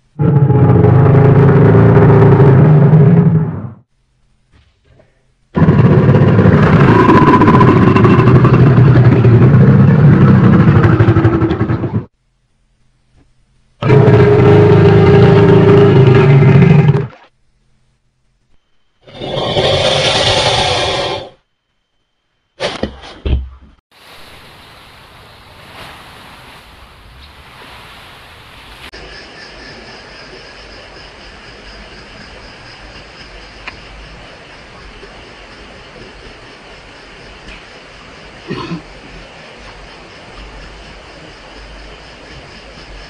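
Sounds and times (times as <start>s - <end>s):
crocodile growling: 5.6s - 12.0s, 13.8s - 17.2s, 19.0s - 21.4s
underwater water noise: 23.9s - 43.0s.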